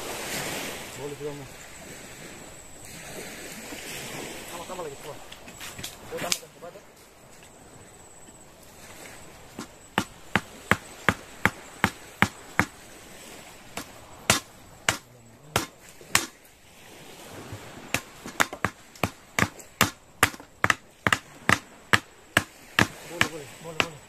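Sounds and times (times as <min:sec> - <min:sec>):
sharp knocks: 0:09.6 - 0:12.8, 0:13.7 - 0:16.4, 0:17.9 - 0:24.0.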